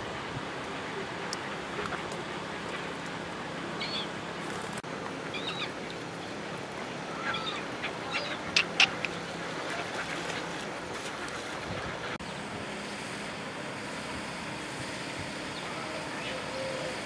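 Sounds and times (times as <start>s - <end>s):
ducks and gulls calling: 3.7s - 12.4s, 15.5s - 17.0s.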